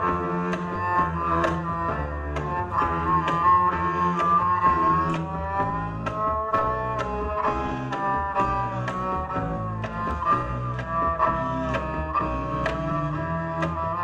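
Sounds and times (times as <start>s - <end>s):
bowed double bass: 0.0s - 14.0s
double bass playing: 0.0s - 14.0s
sharp percussive tap: 0.0s - 14.0s.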